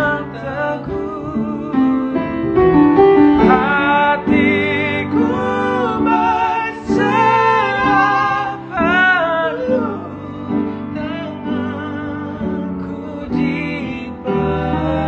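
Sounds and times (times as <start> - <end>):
two men singing a duet: 0.0 - 15.0.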